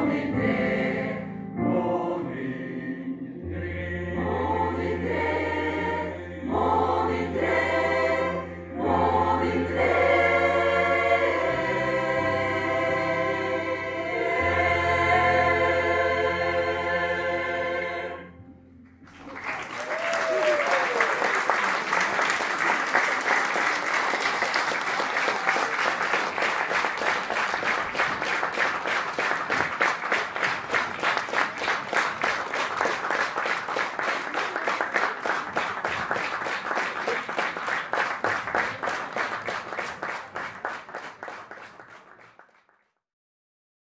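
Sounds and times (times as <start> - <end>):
audience clapping in unison: 19.0 - 43.0.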